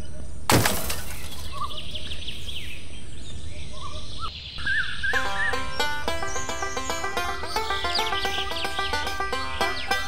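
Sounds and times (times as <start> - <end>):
bird chirping: 1.1 - 10.0.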